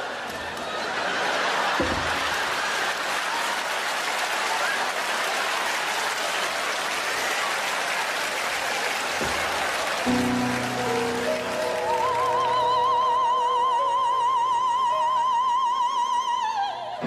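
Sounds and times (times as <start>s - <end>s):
audience applauding: 0.0s - 14.1s
grand piano chord: 10.1s - 13.2s.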